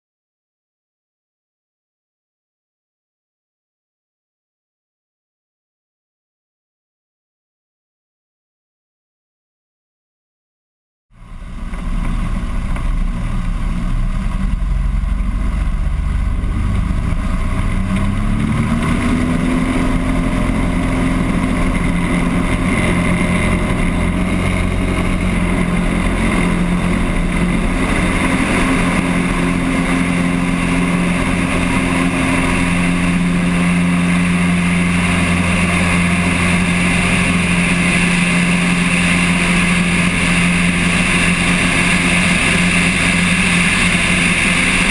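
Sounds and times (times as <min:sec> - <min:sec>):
propeller plane engine: 0:11.1 - 0:44.9
wind rush: 0:11.2 - 0:44.9.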